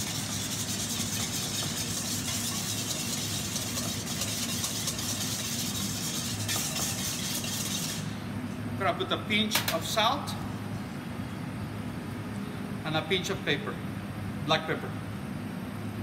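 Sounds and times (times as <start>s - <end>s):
whisk scraping metal bowl: 0.0s - 8.3s
low mechanical hum: 0.0s - 16.0s.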